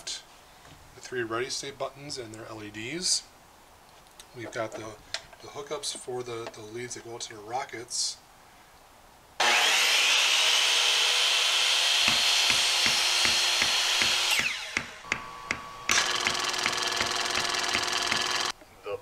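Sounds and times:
power tool whine: 0:09.4 - 0:18.5
regular knocks: 0:12.0 - 0:18.5.

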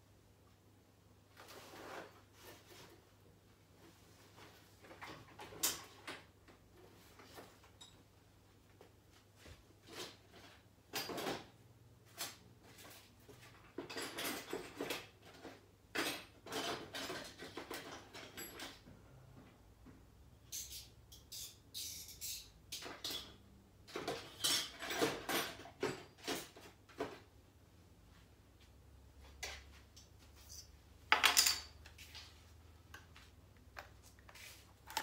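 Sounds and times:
small plastic parts rustling and clattering: 0:33.7 - 0:35.0.

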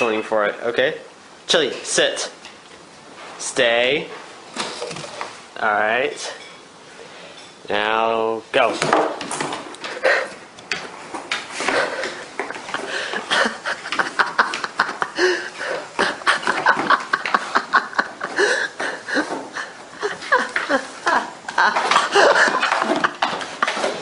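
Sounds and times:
people laughing: 0:11.6 - 0:24.0.

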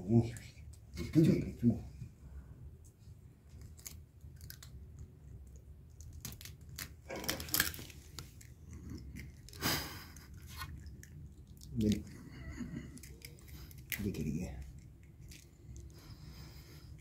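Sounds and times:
eggshells cracking: 0:03.6 - 0:09.6.

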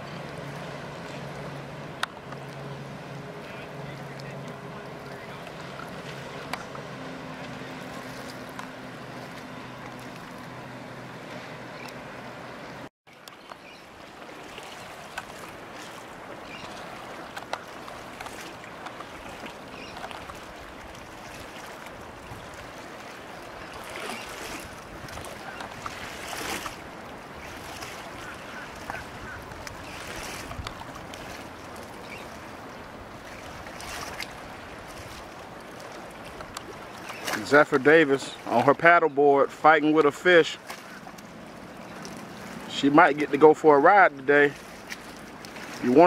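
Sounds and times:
small waves lapping and splashing: 0:00.0 - 0:46.0
wind noise on microphone: 0:29.0 - 0:30.8.

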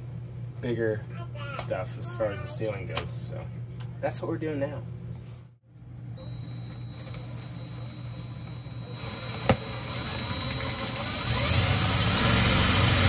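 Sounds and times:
cordless drill rattling: 0:06.6 - 0:13.0.

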